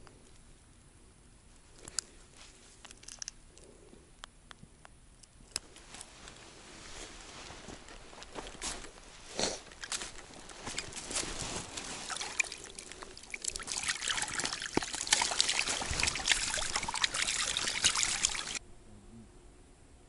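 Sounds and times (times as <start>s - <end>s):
dry reeds rustling: 5.7s - 18.6s
water splashing and trickling: 7.4s - 18.6s.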